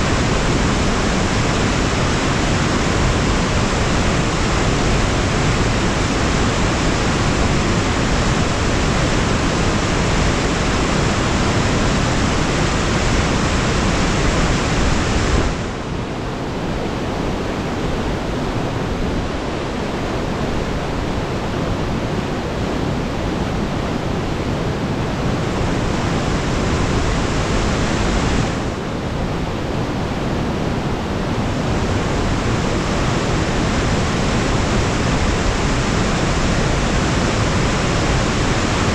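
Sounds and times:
creek whitewater rushing: 0:00.0 - 0:38.9.

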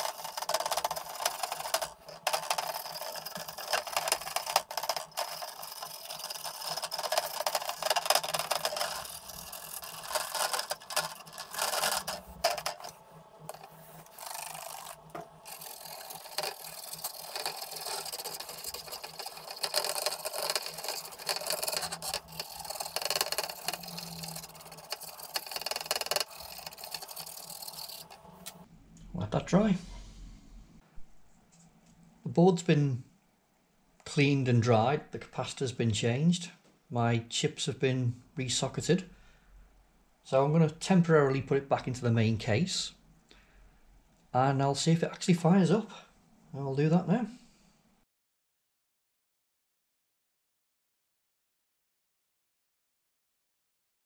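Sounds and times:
stiff brush scrubbing circuit board: 0:00.0 - 0:28.6.

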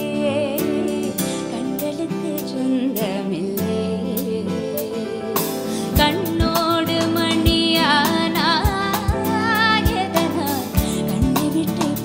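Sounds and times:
person singing: 0:00.0 - 0:12.0
music beat: 0:03.0 - 0:12.0.

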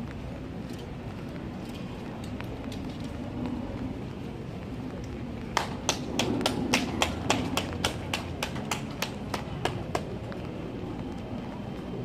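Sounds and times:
sharp hand claps: 0:05.5 - 0:10.2.

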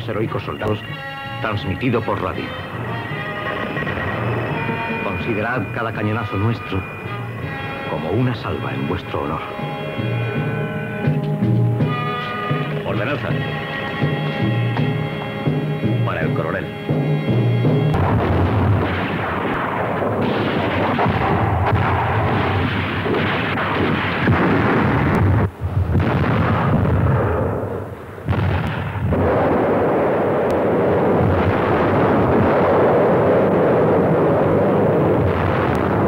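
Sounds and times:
shell bursts: 0:17.9 - 0:33.0
artillery fire: 0:17.9 - 0:36.0.

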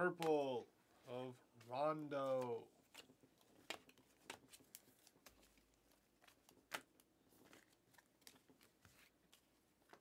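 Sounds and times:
cards being flicked off a stack: 0:02.3 - 0:05.4.

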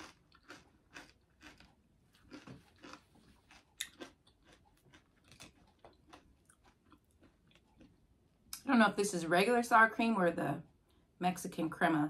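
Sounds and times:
person chewing food: 0:00.0 - 0:08.6.

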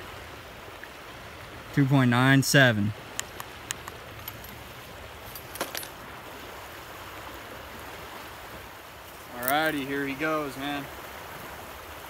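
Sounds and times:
river current rushing: 0:00.0 - 0:12.0
sharp small clicks: 0:03.1 - 0:04.6.

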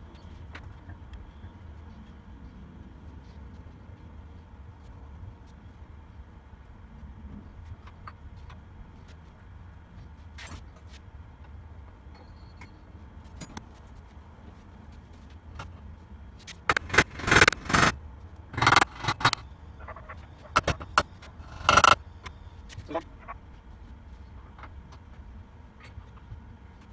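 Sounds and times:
metallic rattles and knocks: 0:16.7 - 0:17.9, 0:20.5 - 0:22.0
sharp metal taps: 0:16.7 - 0:17.9, 0:18.6 - 0:19.4, 0:20.6 - 0:22.0
metal parts clinking and scraping: 0:16.7 - 0:19.4, 0:20.5 - 0:22.0.

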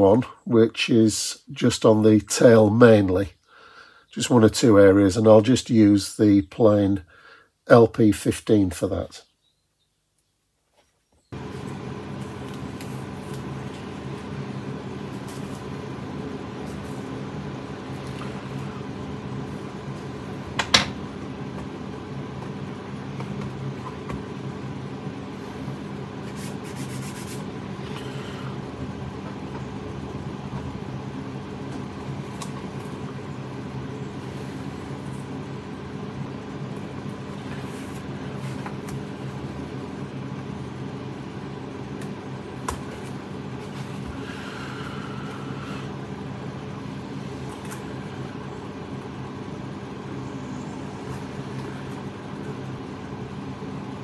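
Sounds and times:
low mechanical hum: 0:00.0 - 0:54.0
handling noises with tape: 0:11.5 - 0:14.3, 0:26.2 - 0:28.1, 0:47.4 - 0:48.0.

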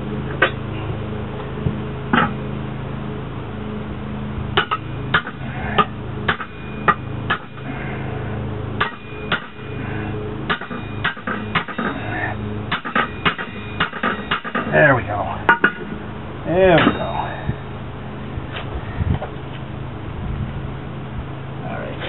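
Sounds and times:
steady low hum: 0:00.0 - 0:22.0
hammer striking metal: 0:04.6 - 0:07.6, 0:08.8 - 0:09.7, 0:10.5 - 0:12.1, 0:12.7 - 0:14.8, 0:15.5 - 0:16.0, 0:16.7 - 0:17.2.

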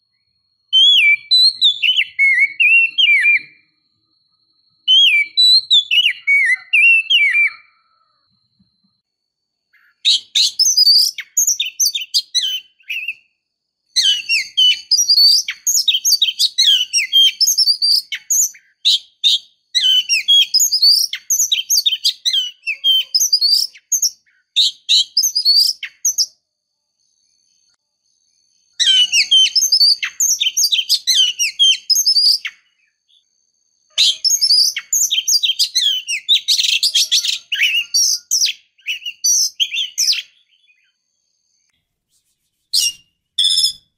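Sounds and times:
bird chirping and whistling: 0:00.8 - 0:03.6, 0:04.9 - 0:07.8, 0:09.8 - 0:13.3, 0:14.0 - 0:26.4, 0:28.8 - 0:33.2, 0:34.0 - 0:40.8, 0:42.7 - 0:43.9.

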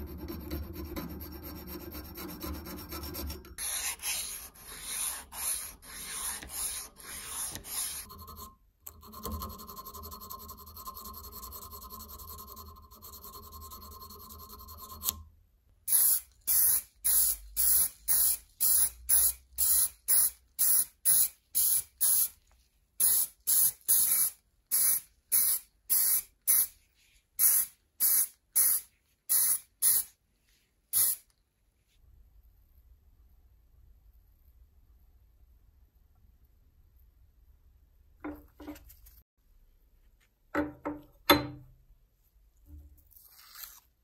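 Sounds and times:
spray paint hissing from aerosol can: 0:15.9 - 0:22.3, 0:23.0 - 0:26.7, 0:27.4 - 0:30.1, 0:31.0 - 0:31.2.

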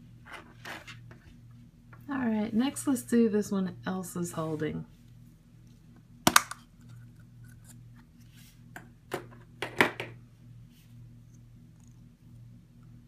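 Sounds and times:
plastic egg snapping open: 0:06.3 - 0:06.7.

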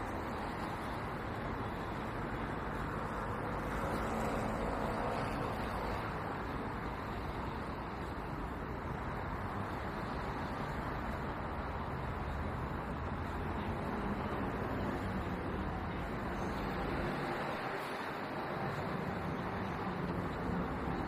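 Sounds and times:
city road traffic: 0:00.0 - 0:21.0.

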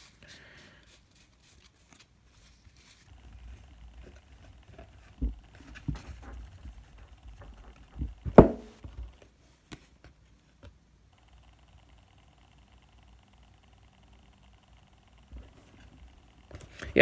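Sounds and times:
cards being shuffled: 0:00.0 - 0:10.8
cards knocking on wooden table: 0:07.3 - 0:09.0.

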